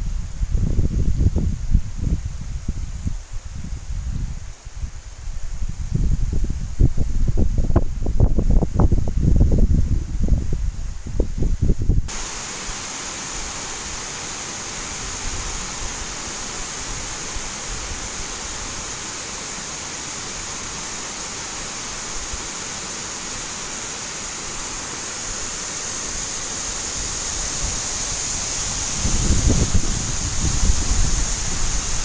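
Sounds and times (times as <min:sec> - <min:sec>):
water cascading roar: 0:00.0 - 0:32.0.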